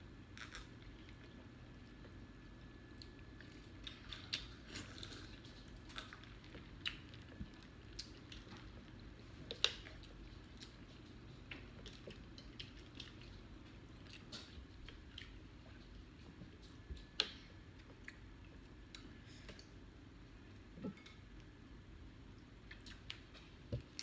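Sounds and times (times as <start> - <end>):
clicks and crackles from handling food: 2.9 - 18.2
people chewing: 3.0 - 19.8.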